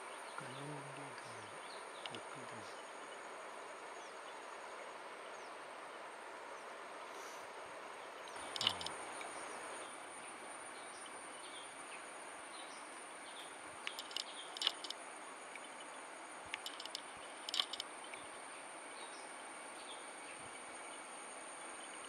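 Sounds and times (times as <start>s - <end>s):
insect drone: 0.0s - 22.0s
steady hiss: 0.0s - 22.0s
sharp bird calls: 8.4s - 9.5s.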